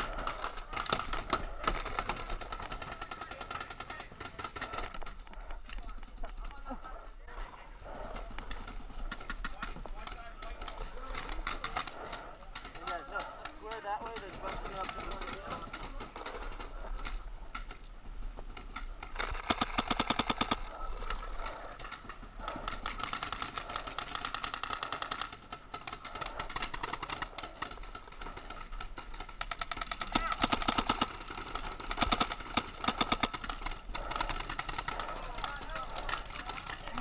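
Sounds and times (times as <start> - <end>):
paintball markers firing: 7.9 - 37.0.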